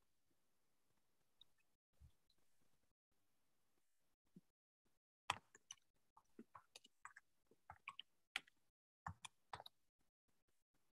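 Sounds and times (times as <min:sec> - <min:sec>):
faint clicks and taps: 0:05.3 - 0:09.8.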